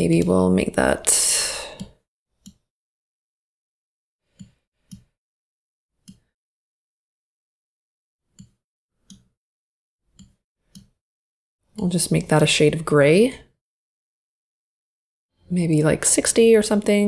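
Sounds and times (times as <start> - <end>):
computer mouse clicks: 1.7 - 2.7, 4.3 - 5.2, 6.0 - 6.3, 8.3 - 9.4, 10.1 - 11.0.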